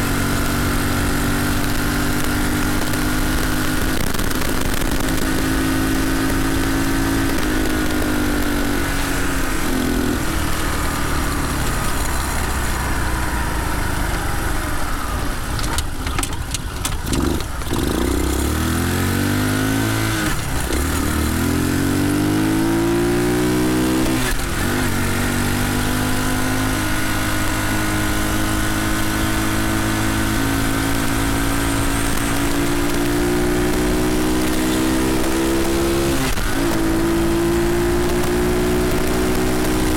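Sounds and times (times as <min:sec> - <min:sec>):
mini bike engine revving: 0:00.0 - 0:39.9.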